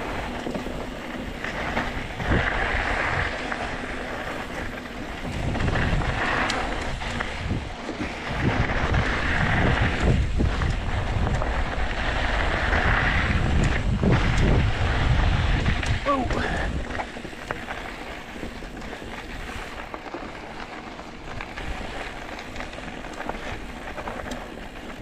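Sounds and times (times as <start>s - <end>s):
wind buffeting microphone: 0.0s - 20.3s
small clicks and rattles: 16.8s - 25.0s.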